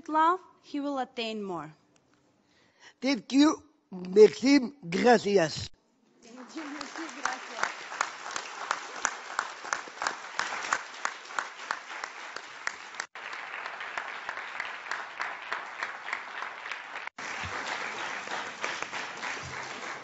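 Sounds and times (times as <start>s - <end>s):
audience applauding: 6.3s - 20.0s.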